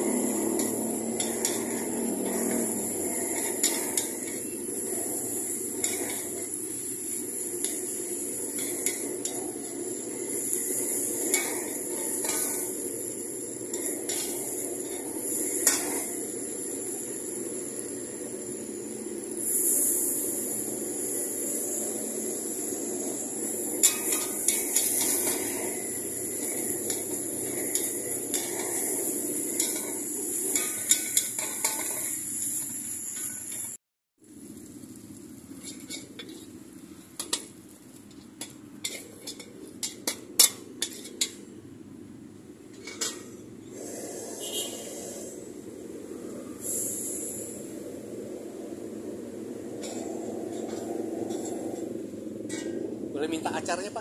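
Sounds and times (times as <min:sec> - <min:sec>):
metal spatula scraping a wok: 0:00.0 - 0:17.2, 0:21.0 - 0:33.8, 0:35.5 - 0:36.6, 0:38.4 - 0:41.4, 0:42.7 - 0:45.5, 0:49.7 - 0:52.8
steady rushing noise: 0:00.0 - 0:32.4, 0:38.9 - 0:54.0.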